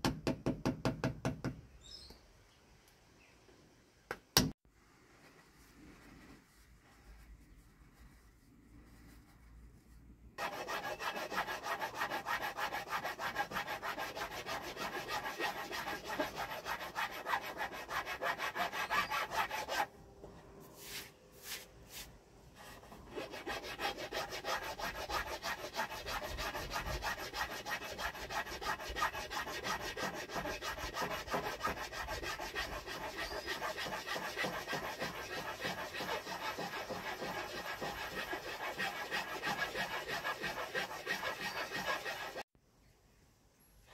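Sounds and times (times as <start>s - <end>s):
hand file rasping on wood: 10.4s - 19.9s, 23.1s - 42.4s.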